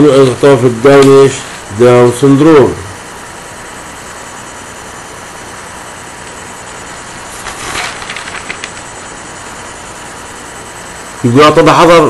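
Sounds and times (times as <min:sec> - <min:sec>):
microphone background hiss: 0:00.0 - 0:12.0.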